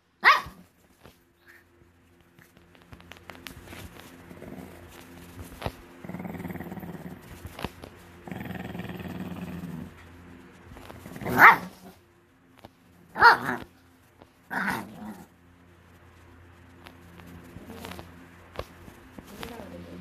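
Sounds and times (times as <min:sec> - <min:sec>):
dog barking: 0:00.2 - 0:00.6, 0:11.3 - 0:11.9, 0:13.2 - 0:13.7
dog growling: 0:04.3 - 0:05.0, 0:06.0 - 0:07.6, 0:08.2 - 0:10.0, 0:13.1 - 0:13.7, 0:14.5 - 0:15.4.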